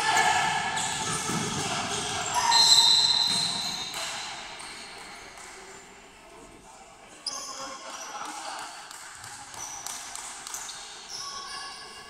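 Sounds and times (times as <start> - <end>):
voices shouting in a gymnasium: 0.0 - 5.9, 6.9 - 12.0.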